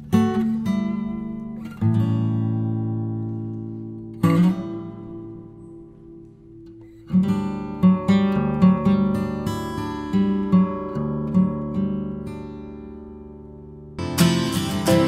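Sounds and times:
acoustic guitar strumming: 0:00.0 - 0:15.0.

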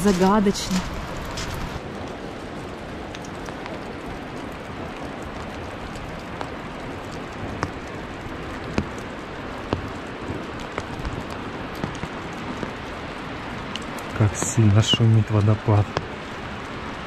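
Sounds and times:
rainfall: 0:00.0 - 0:17.0
water drops ticking: 0:06.0 - 0:12.8.

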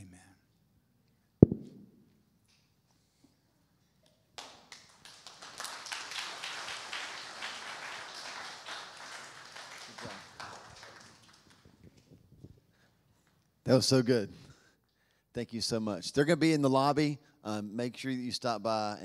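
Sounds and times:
crowd clapping: 0:04.4 - 0:12.1.

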